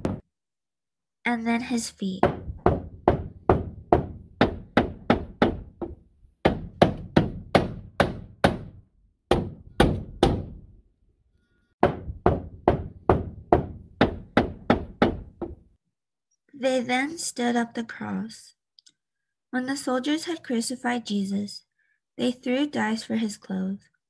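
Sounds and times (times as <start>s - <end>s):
hammer driving nails: 2.2s - 10.8s, 11.8s - 15.6s.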